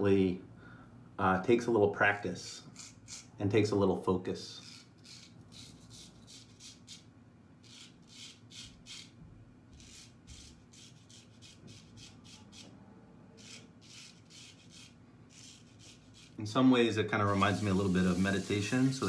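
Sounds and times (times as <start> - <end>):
razor scraping stubble: 2.7 - 3.3, 4.6 - 7.0, 7.6 - 9.2, 9.8 - 12.7, 13.4 - 16.4, 17.2 - 19.0.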